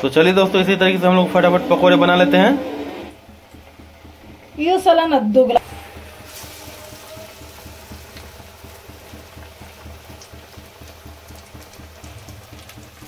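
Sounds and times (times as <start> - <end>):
low hum: 0.0 - 9.4
fritters sizzling in hot oil: 5.6 - 13.0.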